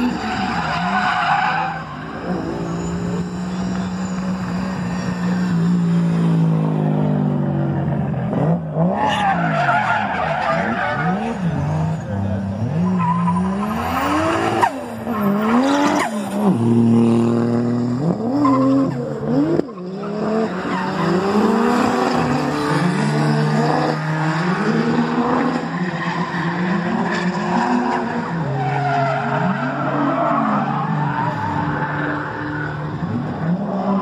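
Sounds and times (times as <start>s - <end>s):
tyres squealing on asphalt: 0.0s - 6.6s, 8.3s - 16.7s, 18.0s - 34.0s.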